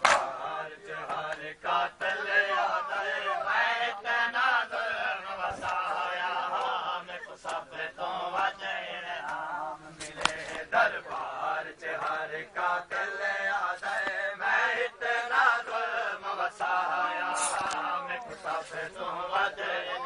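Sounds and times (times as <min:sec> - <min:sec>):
hands slapping chests: 0:00.0 - 0:00.4, 0:10.0 - 0:11.3
people chanting a lament: 0:00.0 - 0:20.0.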